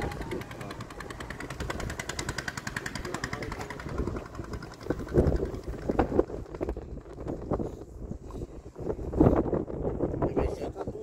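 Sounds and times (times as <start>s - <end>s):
small engine running: 0.0s - 7.9s.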